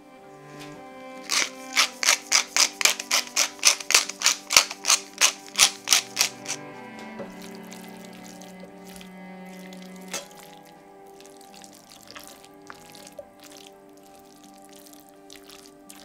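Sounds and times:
pepper mill grinding: 1.2s - 6.7s, 7.4s - 10.7s.

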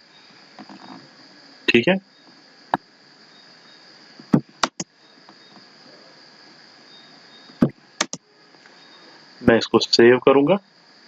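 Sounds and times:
electrical hiss: 0.0s - 11.0s
faint high-pitched whine: 0.0s - 11.0s
mouse and keyboard clicks: 4.6s - 4.9s, 8.0s - 8.2s.

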